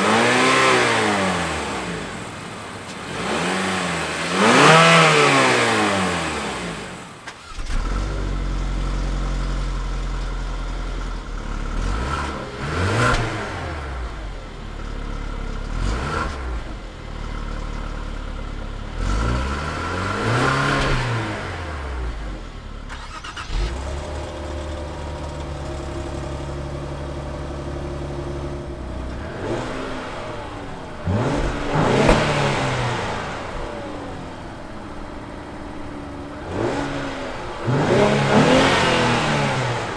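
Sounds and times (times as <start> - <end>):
car exhaust idling: 6.8 - 20.2, 23.5 - 39.9
engine throttle blips: 18.9 - 39.9.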